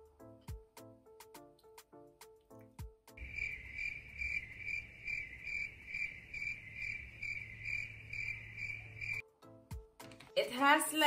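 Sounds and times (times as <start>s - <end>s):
cricket chirping sound effect: 3.2s - 9.2s.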